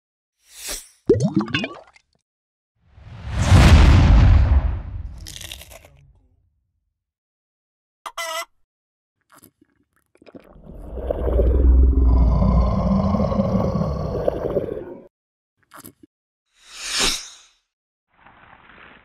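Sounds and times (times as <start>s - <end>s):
short whoosh: 3.0s - 5.3s
deep monster roar: 10.6s - 15.0s.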